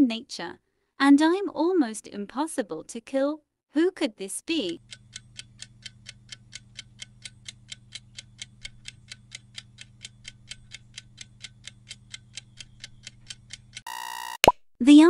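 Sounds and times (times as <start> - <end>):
clock ticking: 4.5 - 13.8.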